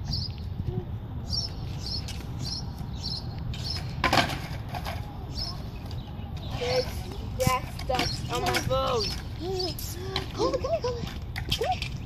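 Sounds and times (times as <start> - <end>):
small bird chirping: 1.2 - 4.0.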